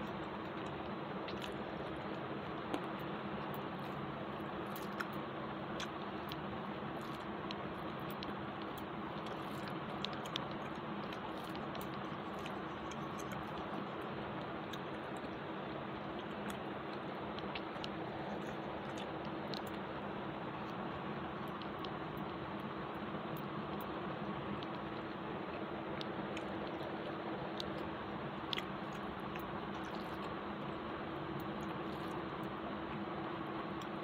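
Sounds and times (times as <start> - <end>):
person chewing: 0.0 - 19.9, 23.7 - 33.1.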